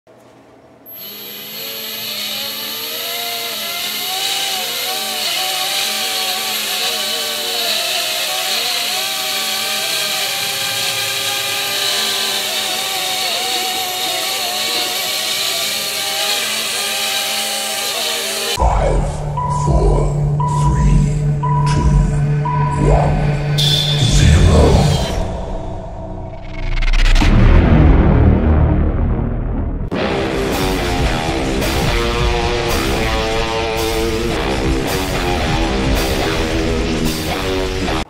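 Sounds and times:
toy drone propellers whirring: 0:00.9 - 0:18.6.

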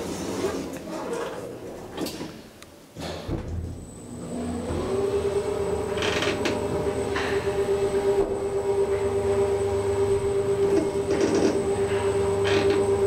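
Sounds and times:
lift motor hum: 0:03.3 - 0:13.0.

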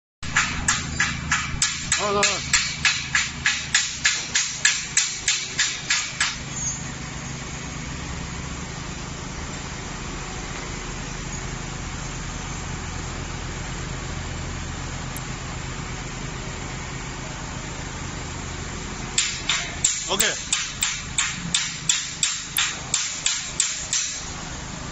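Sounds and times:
rapid sharp knocks: 0:00.2 - 0:06.4, 0:19.2 - 0:24.2
electric hoist humming: 0:00.3 - 0:24.9.

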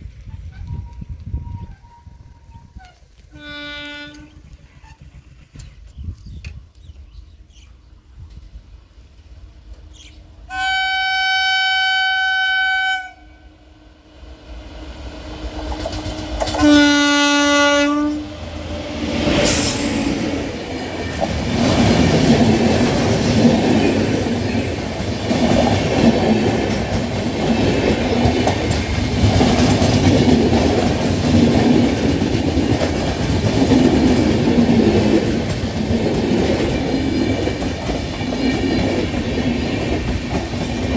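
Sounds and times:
train wheels rumbling on rails: 0:00.0 - 0:10.5, 0:14.0 - 0:40.9
locomotive horn blasts: 0:03.3 - 0:04.4, 0:10.5 - 0:13.6, 0:16.5 - 0:18.4.

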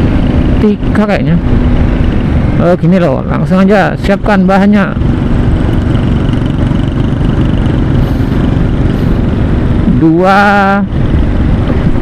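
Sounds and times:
motorcycle engine running: 0:00.0 - 0:12.0
wind and road noise: 0:00.0 - 0:12.0
man talking: 0:02.6 - 0:05.0, 0:09.9 - 0:10.9.

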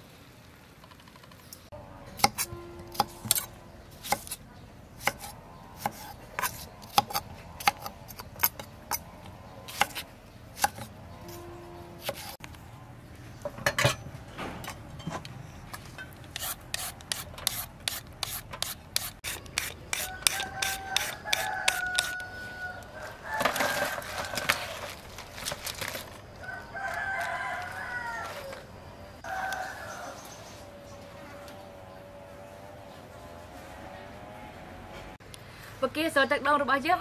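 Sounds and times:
rooster crowing: 0:20.0 - 0:25.0, 0:26.3 - 0:30.7
vegetables clicking and rustling: 0:23.3 - 0:28.7.

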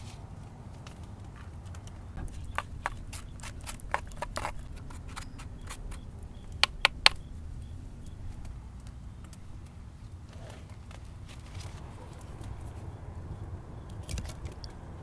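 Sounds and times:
stick tapping clay pot: 0:02.2 - 0:09.4.

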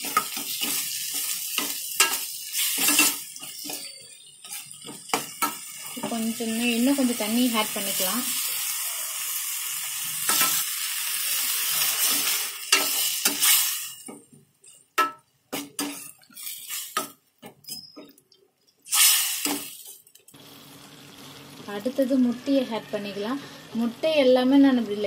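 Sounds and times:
sauce sizzling in a pan: 0:00.0 - 0:14.0.

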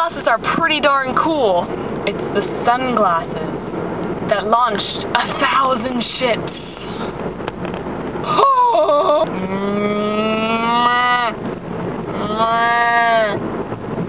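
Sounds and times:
woman imitating cow mooing: 0:09.3 - 0:11.4, 0:12.2 - 0:13.4.

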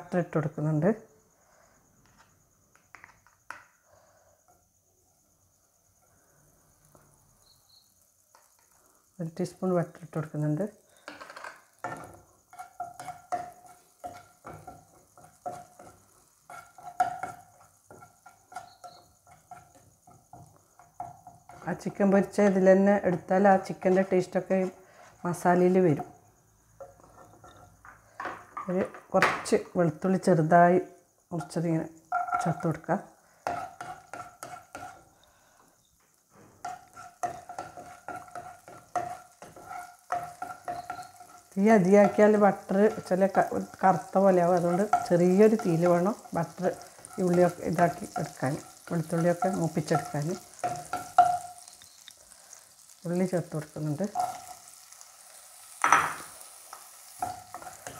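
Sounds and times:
garlic frying in butter: 0:06.4 - 0:30.5, 0:31.3 - 0:57.9
spatula scraping frying pan: 0:10.9 - 0:25.4, 0:33.4 - 0:35.8, 0:36.4 - 0:57.9.

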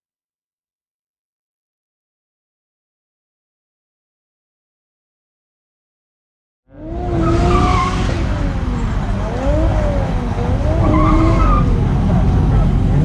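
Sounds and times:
car tyres squealing: 0:06.7 - 0:13.0
low engine rumble: 0:06.7 - 0:13.0.

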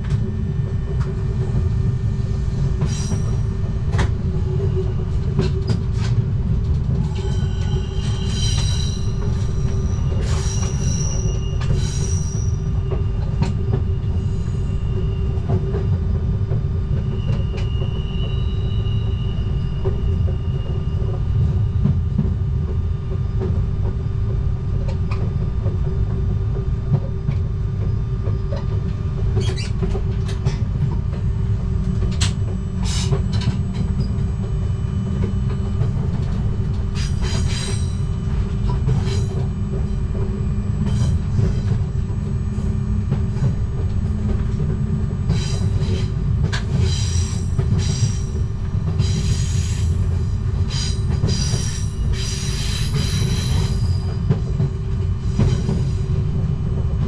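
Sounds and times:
train wheel squeals: 0:00.0 - 0:23.6, 0:26.9 - 0:57.0
train rumble and hum: 0:00.0 - 0:57.0
train wheel clicks: 0:31.8 - 0:34.4.

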